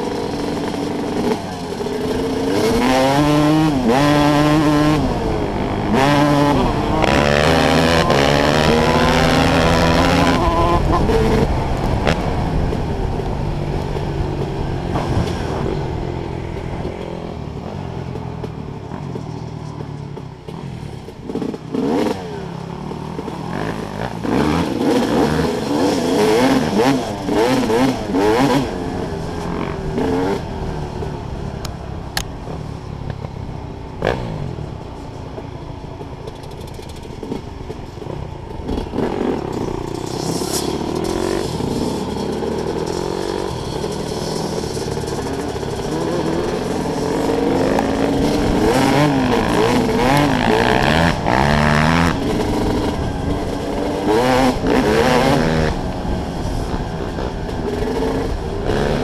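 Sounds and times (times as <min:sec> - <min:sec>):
motorcycle engine revving: 0:00.0 - 0:35.1, 0:35.9 - 0:59.0
rattles and knocks over rough ground: 0:35.3 - 0:55.6.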